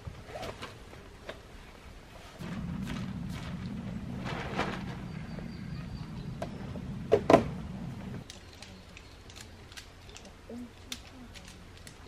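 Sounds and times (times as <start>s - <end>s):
tent fabric flapping and rustling: 2.2s - 6.2s.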